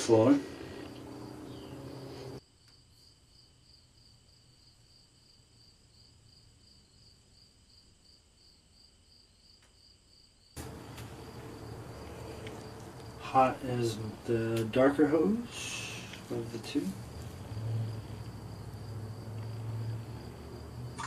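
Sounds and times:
faint insect chirping: 0:00.2 - 0:21.0
low background hiss: 0:10.6 - 0:20.9.

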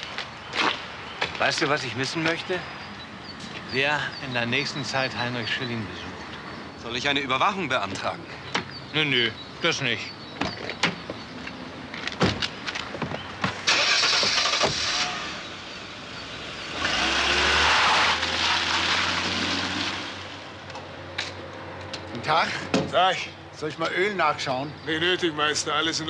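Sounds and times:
car engine starting: 0:13.6 - 0:20.4
car pulling away: 0:13.6 - 0:20.7.

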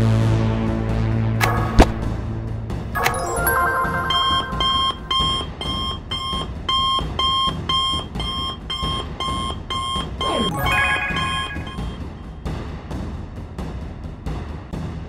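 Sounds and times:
short electronic beeps: 0:03.0 - 0:12.4.

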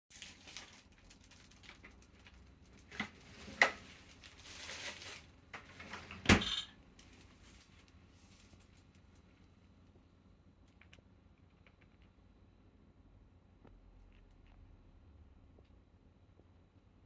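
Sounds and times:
soft rustling: 0:07.0 - 0:09.6.

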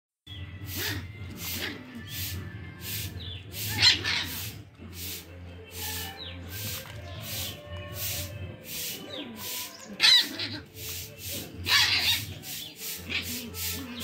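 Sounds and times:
puppies whining and growling: 0:00.3 - 0:04.8, 0:09.7 - 0:10.8.

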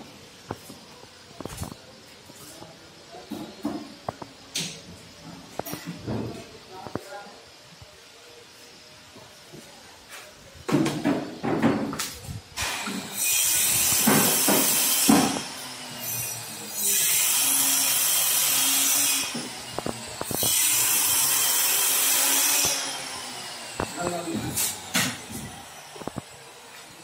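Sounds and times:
power tool high hiss: 0:12.5 - 0:26.9.

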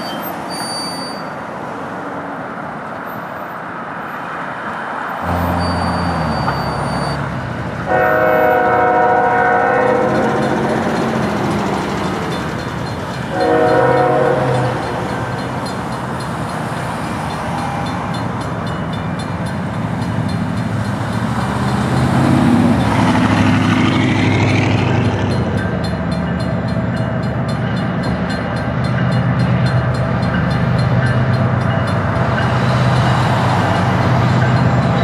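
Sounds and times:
diesel locomotive engines: 0:00.0 - 0:35.0
train air horn: 0:05.2 - 0:06.8, 0:07.8 - 0:10.9, 0:13.3 - 0:15.3
crossing warning bell ringing: 0:05.2 - 0:35.0.

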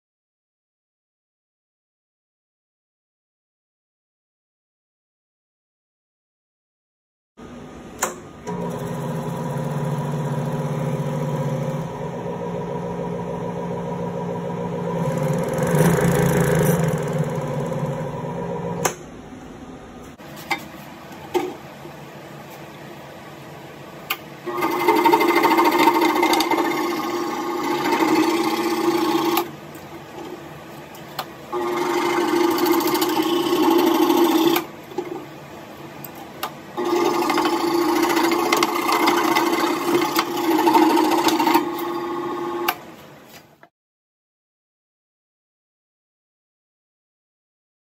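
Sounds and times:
scroll saw cutting wood: 0:14.9 - 0:18.2, 0:24.5 - 0:29.5, 0:31.6 - 0:34.7, 0:36.8 - 0:42.8.

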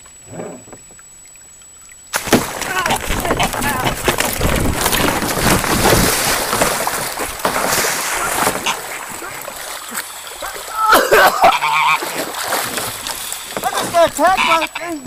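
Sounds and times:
water lapping around kayak: 0:00.0 - 0:15.0
splashing and wing-beating: 0:02.1 - 0:15.0
goose honking: 0:08.2 - 0:12.4, 0:13.2 - 0:15.0.

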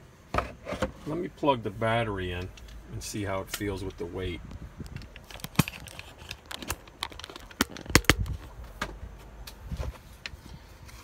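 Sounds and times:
plastic case clicks and knocks: 0:06.6 - 0:08.3.

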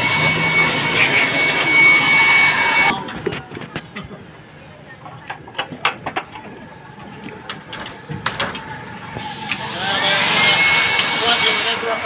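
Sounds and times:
rising whine: 0:00.0 - 0:03.7, 0:08.4 - 0:12.0.

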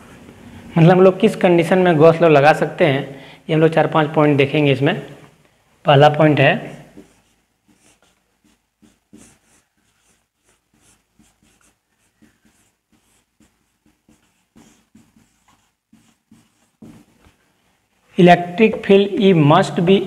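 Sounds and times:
pen scratching while writing: 0:07.0 - 0:17.2.

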